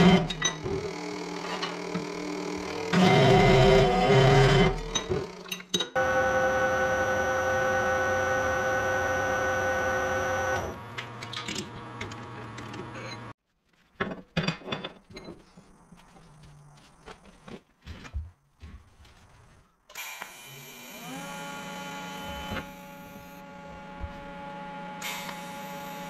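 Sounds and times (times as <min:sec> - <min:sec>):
metal lathe whining: 0:00.0 - 0:10.8
cold saw cutting steel: 0:01.1 - 0:05.4, 0:06.0 - 0:10.8
metal parts clicking and knocking: 0:04.9 - 0:06.0.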